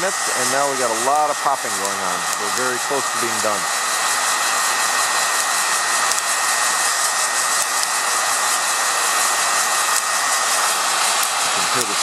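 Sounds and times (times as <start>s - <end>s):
heat gun blowing air: 0.0s - 12.0s
high whine: 0.0s - 12.0s
coffee beans popping: 5.2s - 6.4s, 7.0s - 8.1s.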